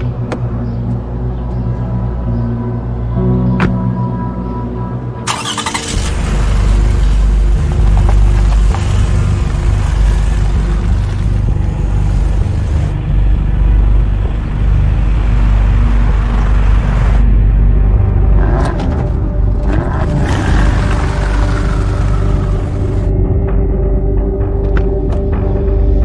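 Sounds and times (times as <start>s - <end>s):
car driving off: 5.2s - 23.1s.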